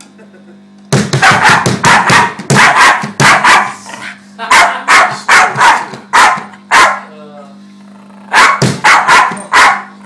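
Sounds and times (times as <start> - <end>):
small dog barking: 1.2 - 3.8, 4.5 - 7.1, 8.3 - 10.0.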